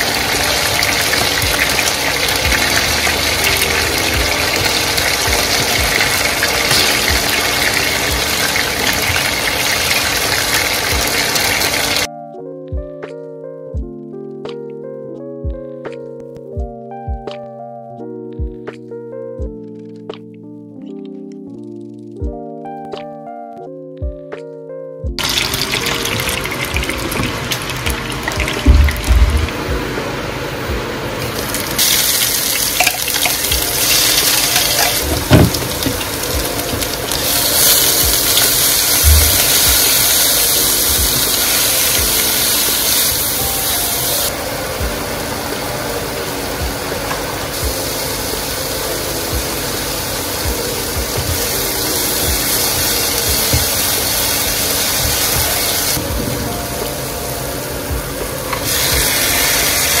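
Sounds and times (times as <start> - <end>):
oil sizzling in a frying pan: 0.0 - 12.1, 25.2 - 29.6, 31.2 - 56.0, 58.5 - 60.0.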